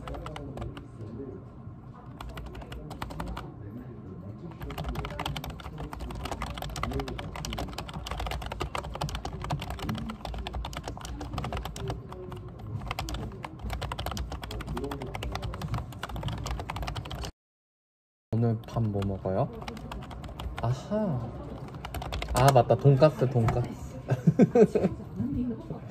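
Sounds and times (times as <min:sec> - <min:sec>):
fast typing on keyboard: 0:00.0 - 0:01.1, 0:02.1 - 0:03.5, 0:04.4 - 0:17.3, 0:18.5 - 0:23.7.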